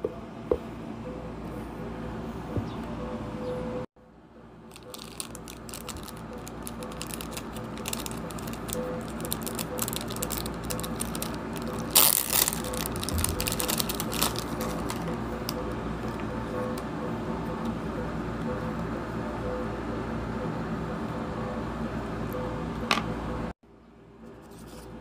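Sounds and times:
plastic packet crinkling: 0:04.7 - 0:15.6.

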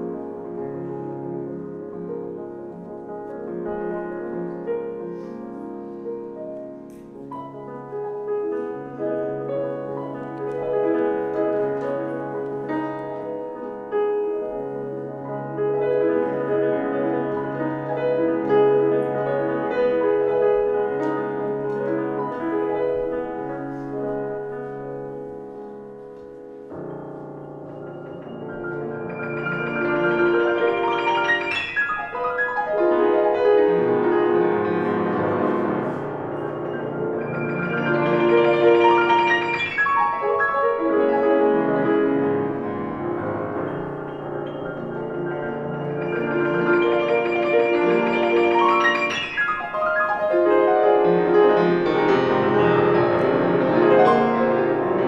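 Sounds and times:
grand piano playing classical music: 0:00.0 - 0:55.0.

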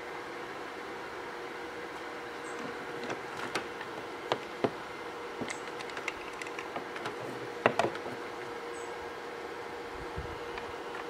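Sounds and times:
faint steady hum: 0:00.0 - 0:11.0
cables clicking and knocking on table: 0:05.4 - 0:08.2.

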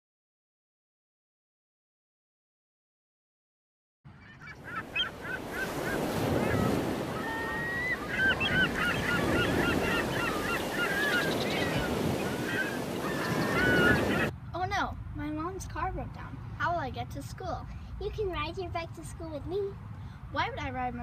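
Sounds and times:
flock of birds calling: 0:04.1 - 0:14.3.

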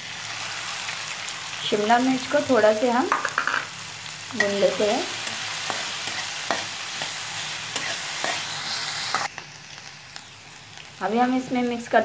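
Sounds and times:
vegetables sizzling in oil: 0:00.0 - 0:12.0
spatula scraping a pan: 0:04.4 - 0:09.3.

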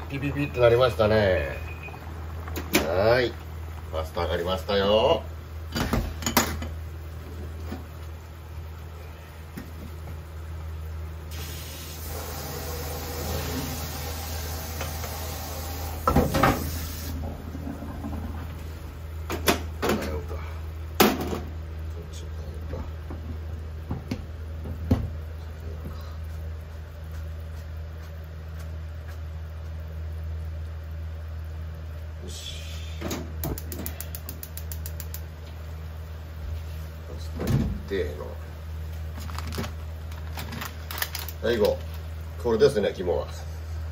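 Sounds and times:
pan simmering hiss: 0:00.0 - 0:40.2
steady low hum: 0:00.0 - 0:43.9.

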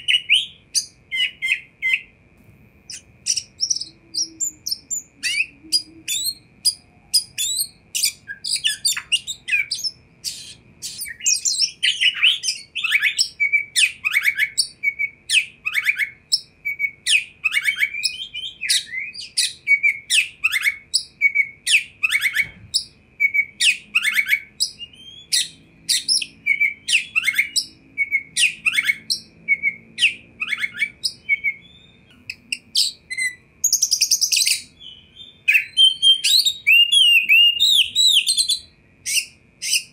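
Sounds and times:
bird singing whistled song: 0:00.0 - 0:02.2, 0:02.9 - 0:39.9.

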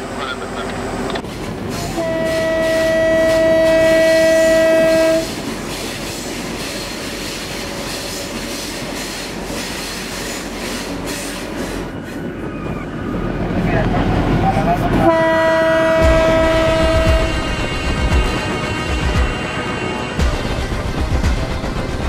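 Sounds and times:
locomotive air horn: 0:01.8 - 0:05.4, 0:15.0 - 0:17.7
train wheels clattering on rails: 0:04.7 - 0:12.8, 0:15.8 - 0:22.0.

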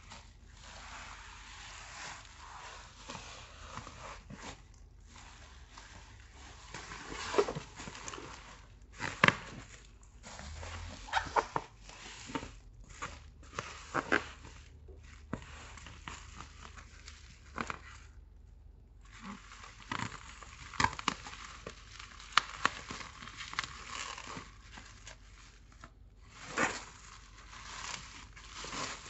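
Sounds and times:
plastic bag crinkling: 0:19.1 - 0:29.0.

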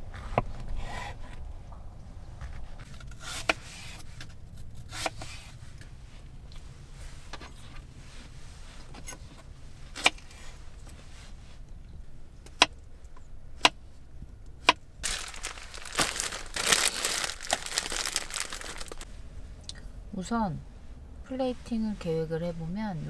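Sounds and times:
packaging crinkling and rustling: 0:15.0 - 0:19.1.

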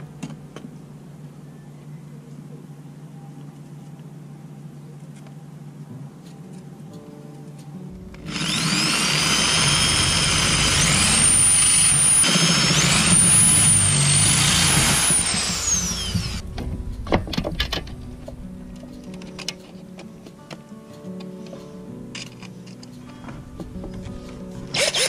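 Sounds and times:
electric drill motor whine: 0:08.2 - 0:16.4, 0:24.7 - 0:25.0.

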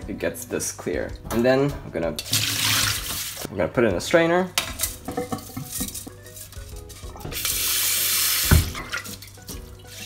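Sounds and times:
water rushing into strainer: 0:02.3 - 0:03.5, 0:07.3 - 0:10.0
bowl knocking on sink: 0:08.5 - 0:09.0.

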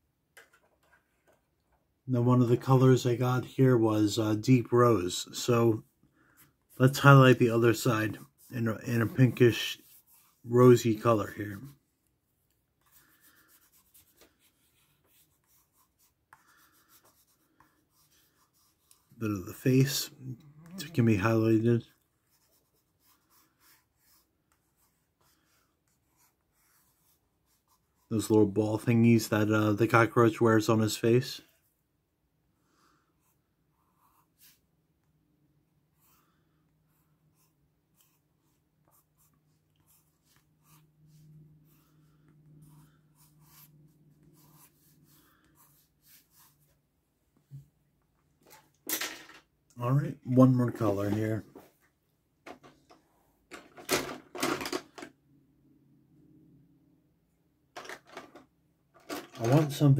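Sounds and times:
pencil scratching on paper: 0:05.1 - 0:20.2, 0:20.8 - 0:28.5, 0:32.9 - 0:34.7, 0:35.9 - 0:46.8.

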